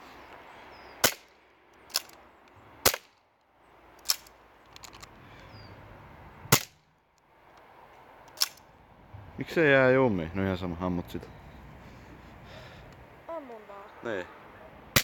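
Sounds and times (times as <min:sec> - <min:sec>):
airsoft pistol shots: 0:06.5 - 0:06.8.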